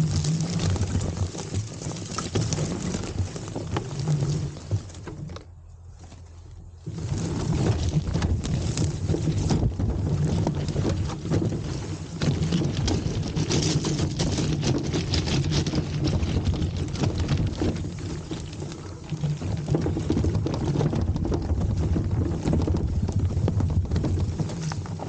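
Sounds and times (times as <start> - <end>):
wind buffeting microphone: 7.3 - 25.0.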